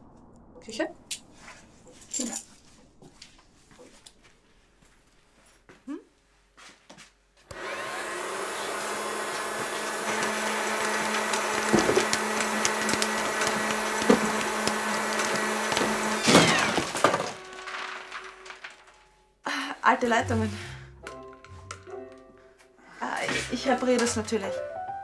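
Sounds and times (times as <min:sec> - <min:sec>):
appliance motor humming: 0:07.5 - 0:18.5
loud clatter: 0:09.3 - 0:19.2
contents rattling: 0:09.4 - 0:19.1.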